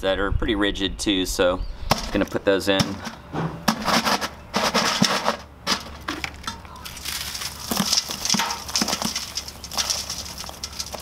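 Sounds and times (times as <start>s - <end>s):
blocks knocking in a metal bucket: 1.9s - 6.7s, 7.4s - 11.0s
crumbling aircrete crackle: 1.9s - 11.0s.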